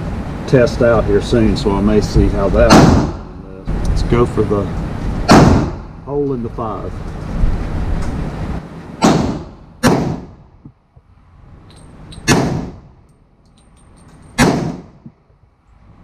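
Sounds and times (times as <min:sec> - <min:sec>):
pistol shots echoing indoors: 0:02.7 - 0:03.2, 0:05.3 - 0:05.8, 0:12.2 - 0:12.8, 0:14.4 - 0:14.9.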